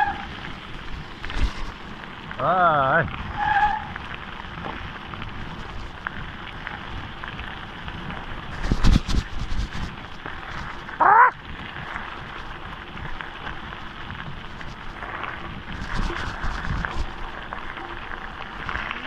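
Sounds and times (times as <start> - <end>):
bike tyres rolling on gravel: 0.0 - 19.0
wavering call: 11.0 - 11.4.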